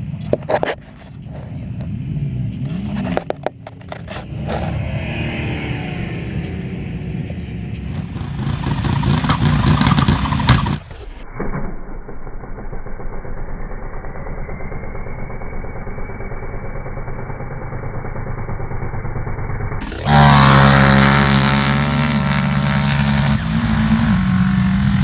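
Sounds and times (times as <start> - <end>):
muffled atv engine revving: 1.3 - 25.0
loud quad engine revving hard: 7.8 - 10.9, 19.8 - 25.0.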